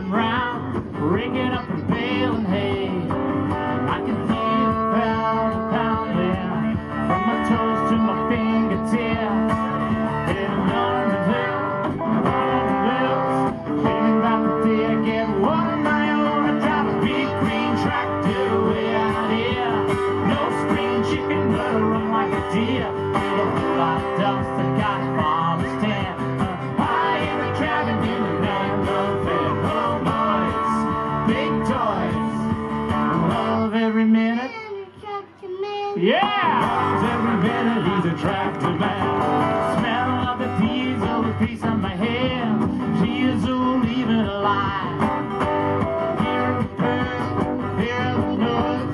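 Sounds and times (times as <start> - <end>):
electric bass: 0.0 - 34.0, 36.3 - 48.9
country band playing: 0.0 - 48.9
strummed acoustic guitars: 0.0 - 48.9.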